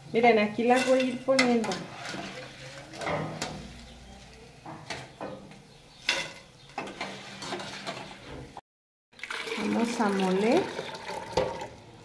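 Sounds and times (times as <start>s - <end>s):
metal spoon scraping saucepan: 0.6s - 3.9s, 4.8s - 8.3s.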